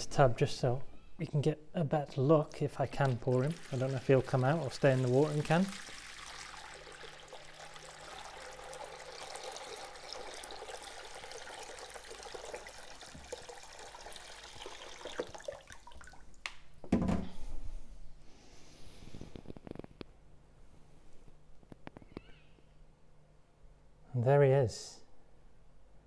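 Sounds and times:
water pouring into plastic tub: 0:02.6 - 0:16.4.

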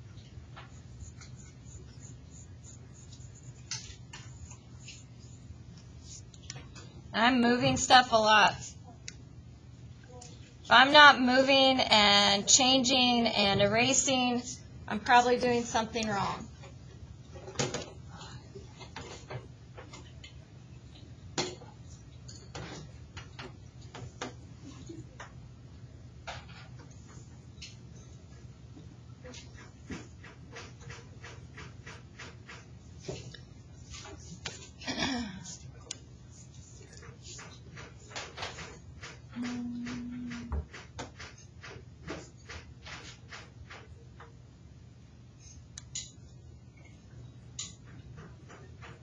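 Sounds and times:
pencil scratching on paper: 0:00.6 - 0:06.3.

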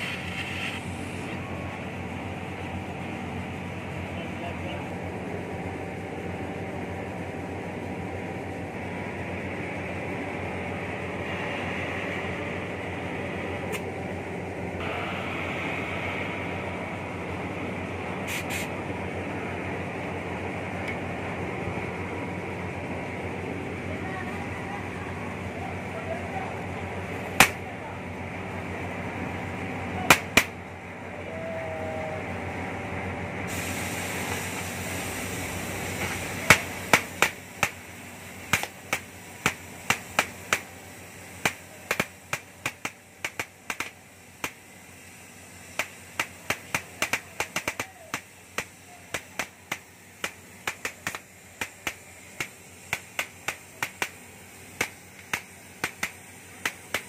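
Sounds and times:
sparks crackling and popping: 0:00.0 - 0:01.4, 0:27.4 - 0:27.6, 0:30.1 - 0:30.6, 0:33.8 - 0:57.0
cutting torch hissing: 0:00.0 - 0:28.0, 0:33.4 - 0:57.0.

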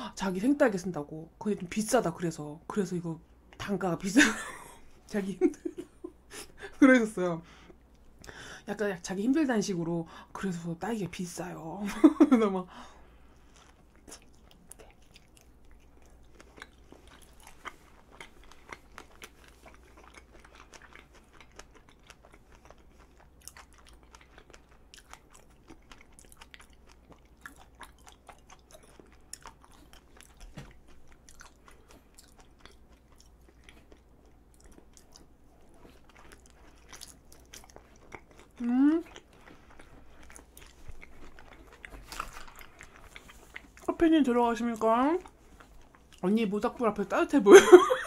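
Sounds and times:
person chewing: 0:13.1 - 0:44.0, 0:44.6 - 0:46.2.

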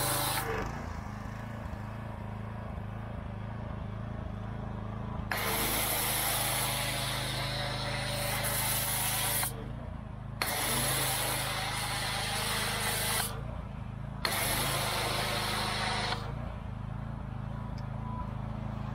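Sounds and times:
hissing foam spray: 0:00.0 - 0:00.7, 0:05.3 - 0:09.6, 0:10.4 - 0:13.4, 0:14.3 - 0:16.3
pressure washer humming: 0:00.0 - 0:03.0, 0:05.3 - 0:09.7, 0:10.4 - 0:13.5, 0:14.2 - 0:16.5.

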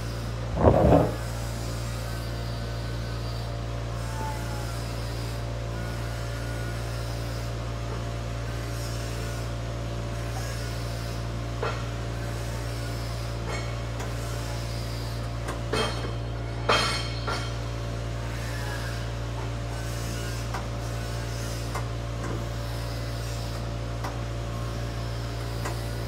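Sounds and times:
low machine hum: 0:00.0 - 0:06.9.

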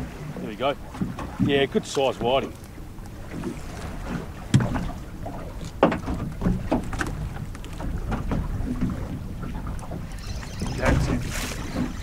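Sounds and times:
low rumble of wind and water: 0:00.0 - 0:12.0
fishing rod and fish knocking: 0:05.6 - 0:12.0.

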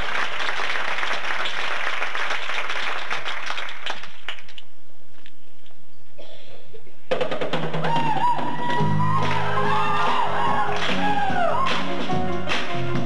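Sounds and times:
audience applauding: 0:00.0 - 0:04.6, 0:07.9 - 0:13.0.

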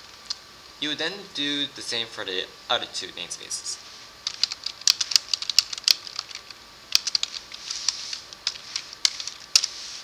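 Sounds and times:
computer keyboard typing: 0:04.2 - 0:09.7.

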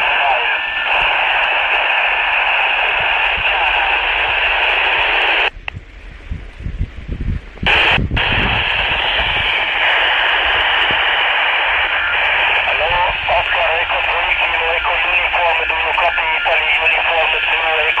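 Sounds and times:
radio crackle: 0:00.0 - 0:05.6, 0:07.6 - 0:18.0
radio static hiss: 0:00.0 - 0:05.6, 0:07.6 - 0:18.0
wind rumble on microphone: 0:05.4 - 0:11.4.

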